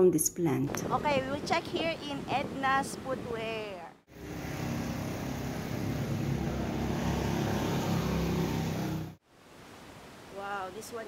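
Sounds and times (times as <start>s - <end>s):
engine running: 4.1s - 9.2s.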